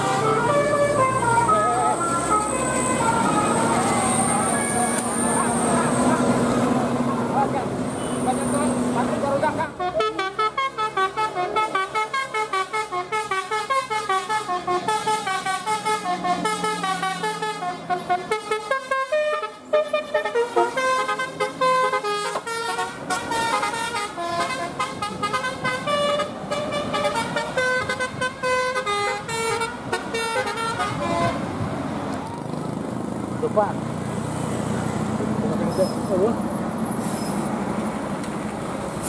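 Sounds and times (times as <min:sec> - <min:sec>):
musical air horn toots: 0:09.8 - 0:31.4.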